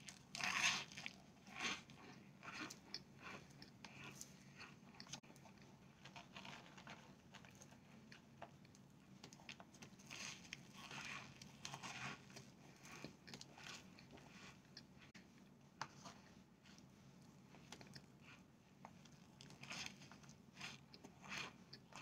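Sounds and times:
crunching and chewing: 0:00.0 - 0:22.0
fingers scraping powder in plastic: 0:00.1 - 0:02.0, 0:10.0 - 0:14.6.

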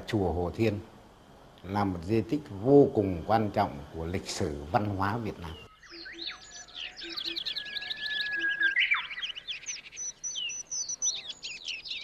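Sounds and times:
birds chirping and trilling: 0:00.0 - 0:12.0
long whistled bird note: 0:05.7 - 0:10.4.

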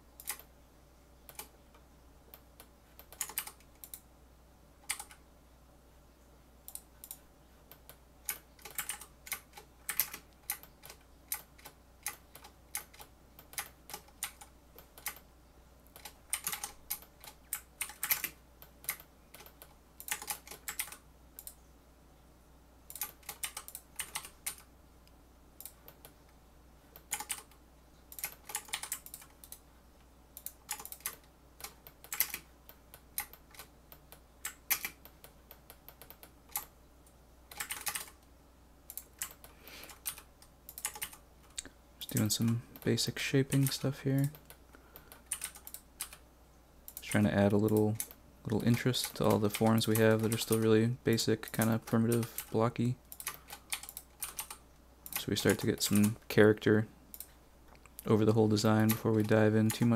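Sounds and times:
keyboard keys clicking: 0:02.3 - 0:04.0, 0:04.9 - 0:05.2, 0:06.7 - 0:15.2, 0:15.9 - 0:21.6, 0:27.0 - 0:29.6, 0:30.4 - 0:36.7, 0:37.5 - 0:38.2, 0:38.9 - 0:41.2
fan humming: 0:35.0 - 0:59.9.

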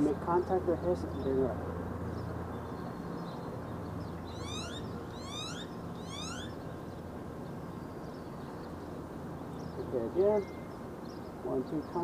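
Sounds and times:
outdoor background noise: 0:00.0 - 0:12.0
short rising chirps: 0:04.3 - 0:06.6.

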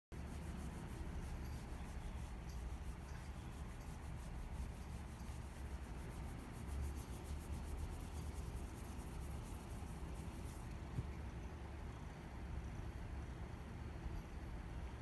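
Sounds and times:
hand stroking cat fur: 0:00.2 - 0:11.2.

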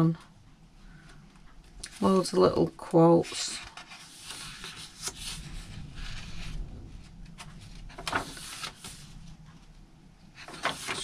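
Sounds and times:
paper pages turning: 0:03.3 - 0:06.6, 0:07.3 - 0:09.2, 0:10.4 - 0:11.0.

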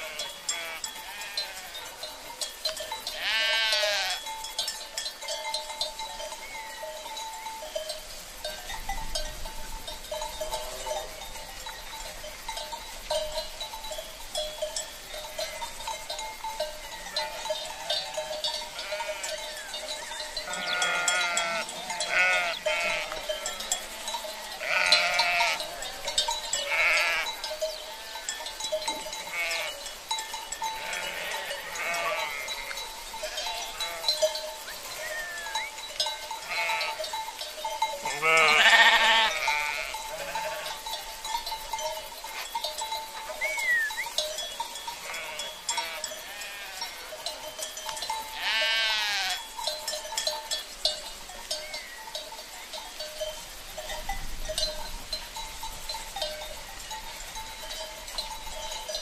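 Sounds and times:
sheep bleating: 0:00.0 - 0:01.9, 0:03.2 - 0:04.2, 0:18.8 - 0:19.4, 0:20.5 - 0:28.3, 0:29.2 - 0:29.8, 0:30.8 - 0:34.2, 0:35.0 - 0:35.7, 0:36.4 - 0:37.0, 0:38.0 - 0:40.8, 0:45.0 - 0:47.1, 0:48.4 - 0:49.4.

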